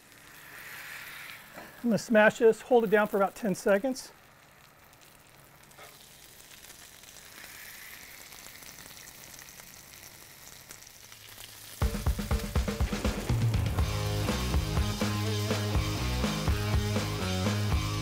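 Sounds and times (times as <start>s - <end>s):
burger patties sizzling on griddle: 0.0s - 18.0s
background music with steady beat: 11.8s - 18.0s.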